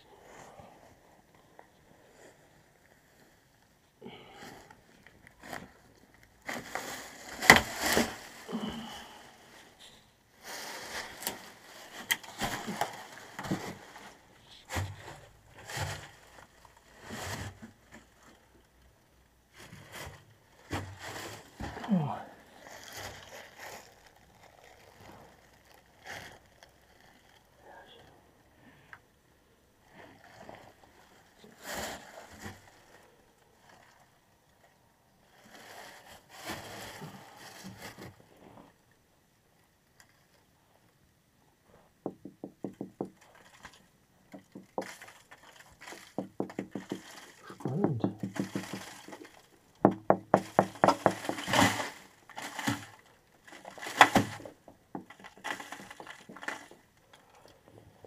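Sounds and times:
rustling and scuffing: 19.6 - 21.9.

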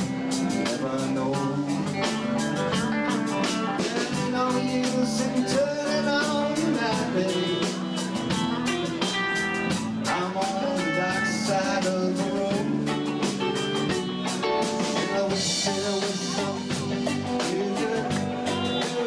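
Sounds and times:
acoustic guitar: 0.0 - 19.0
bass guitar: 0.0 - 19.0
drum beat: 0.0 - 19.0
electric guitar: 0.0 - 19.0
man singing: 0.0 - 19.0.

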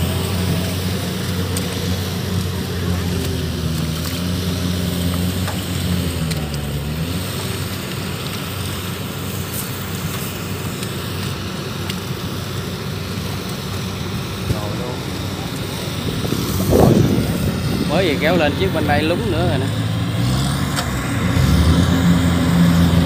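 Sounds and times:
diesel engine running under load: 0.0 - 23.0
steady rushing noise: 7.2 - 23.0.

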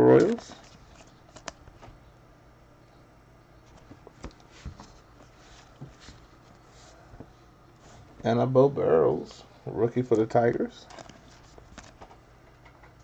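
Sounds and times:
cards clicking and rustling: 0.2 - 1.8, 10.8 - 12.2.

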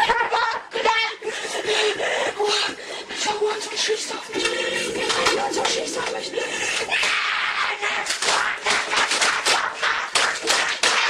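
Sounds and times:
person speaking: 2.3 - 7.0
sharp slaps and knocks: 8.1 - 11.0.

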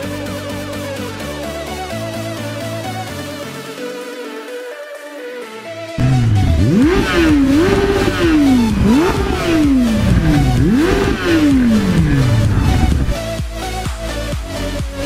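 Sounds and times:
motorcycle engine revving: 6.0 - 13.3.

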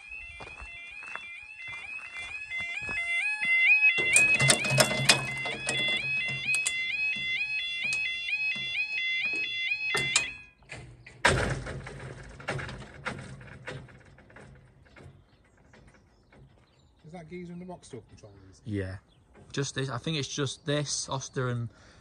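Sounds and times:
level crossing alarm warbling: 0.0 - 10.6.

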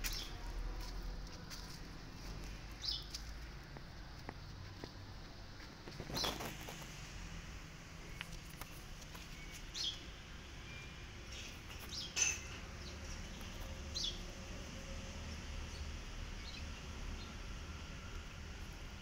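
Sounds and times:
birds chirping: 8.0 - 14.2.

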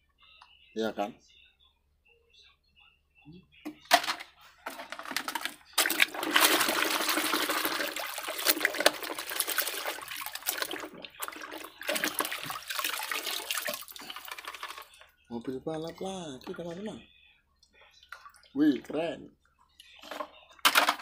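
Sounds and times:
water sloshing in metal basin: 4.7 - 15.0.

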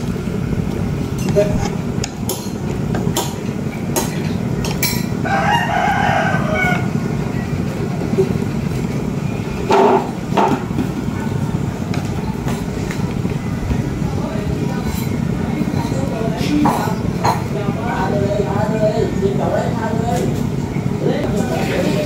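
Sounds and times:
pot boiling: 0.0 - 18.2
rooster crowing: 5.2 - 7.1.

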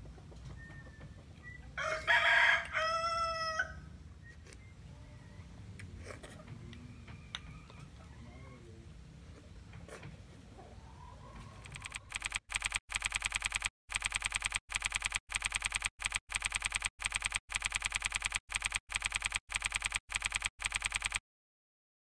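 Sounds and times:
rapid keyboard key clicks: 11.6 - 21.2.

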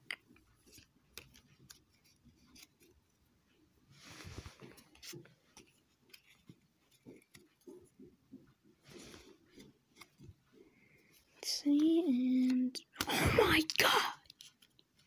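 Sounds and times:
card sliding over card: 4.0 - 5.1.

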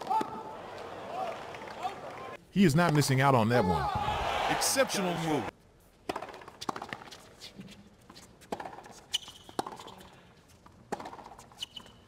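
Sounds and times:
racket hitting tennis ball: 6.0 - 7.2, 8.4 - 10.0, 10.9 - 11.5
shoe squeaks: 7.1 - 10.2, 11.3 - 12.0
ball bouncing: 10.9 - 11.4.

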